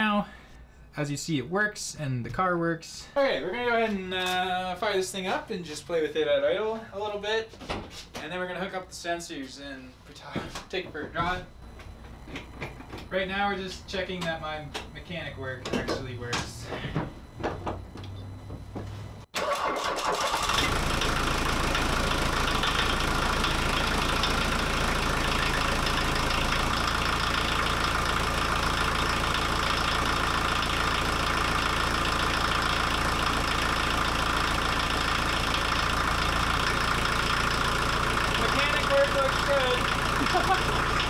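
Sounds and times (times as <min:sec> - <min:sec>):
diesel engine starting and idling: 0:19.3 - 0:41.0.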